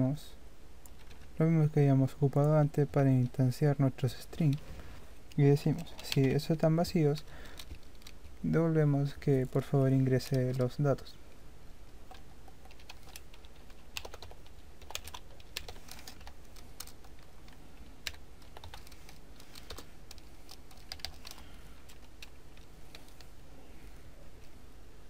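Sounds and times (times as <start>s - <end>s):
typing on computer keyboard: 12.1s - 23.1s.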